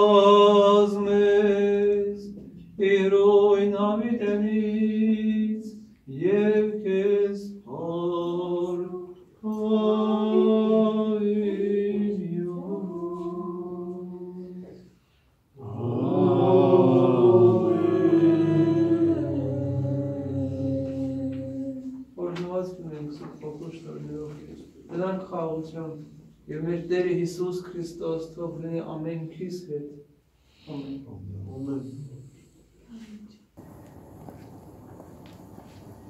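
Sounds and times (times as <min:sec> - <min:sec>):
man chanting a hymn: 0:00.0 - 0:14.8, 0:15.6 - 0:32.6
lower voices singing: 0:00.0 - 0:22.2.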